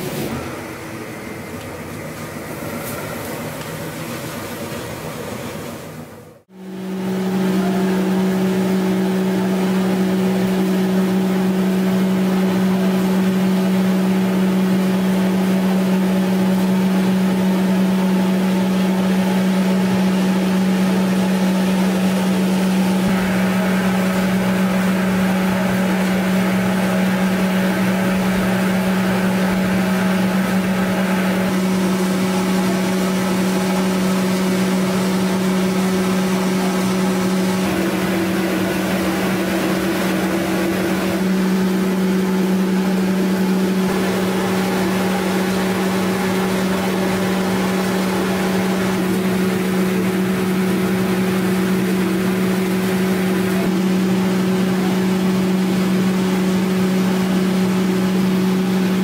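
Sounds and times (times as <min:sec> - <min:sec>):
machinery humming: 0:00.0 - 0:59.0.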